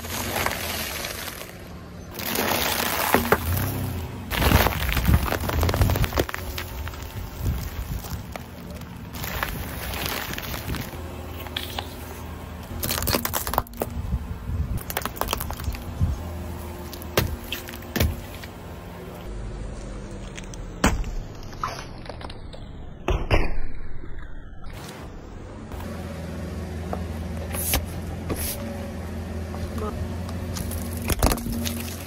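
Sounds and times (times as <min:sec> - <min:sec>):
plastic packets crackling under tyre: 0:00.0 - 0:12.2, 0:12.8 - 0:13.9, 0:14.8 - 0:16.2
low car rumble: 0:00.0 - 0:23.2, 0:23.9 - 0:32.0.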